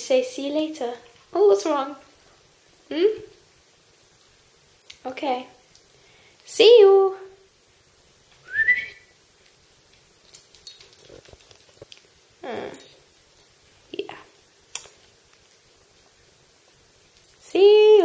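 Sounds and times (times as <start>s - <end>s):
light clicks and taps: 9.4s - 13.5s.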